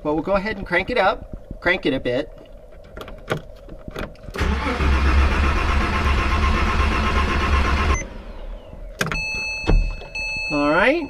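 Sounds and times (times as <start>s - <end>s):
car engine cranking on starter: 4.3s - 9.2s.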